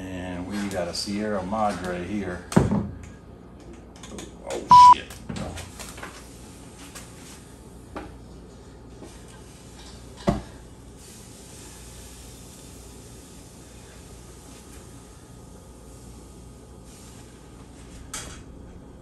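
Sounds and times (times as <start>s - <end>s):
censor bleep: 4.7s - 5.0s
steady hiss: 8.9s - 18.1s.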